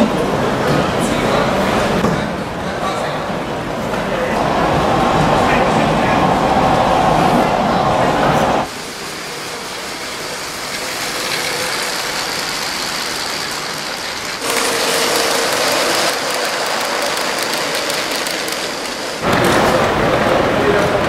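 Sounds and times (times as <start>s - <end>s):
wheels clicking over track: 9.4s - 21.0s
toy train motor whirring: 9.9s - 19.2s.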